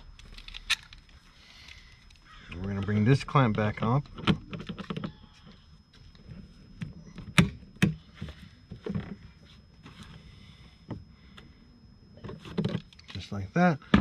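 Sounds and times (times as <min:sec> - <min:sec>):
clicks and knocks of plastic parts: 0:00.1 - 0:09.3, 0:12.2 - 0:14.0.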